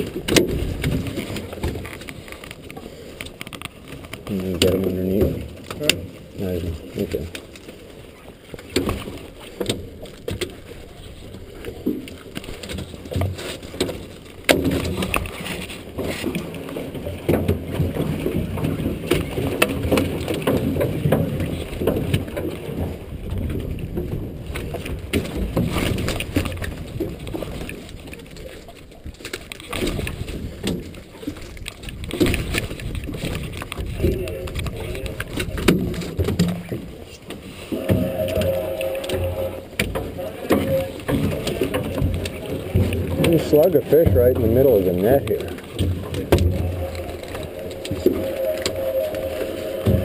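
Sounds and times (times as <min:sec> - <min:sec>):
low rumble: 0:37.6 - 0:43.2, 0:45.9 - 0:50.0.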